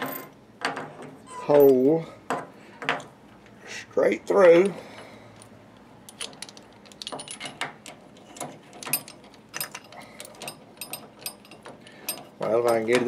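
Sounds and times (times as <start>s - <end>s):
metallic clicks and clinks of vise: 6.1s - 13.0s.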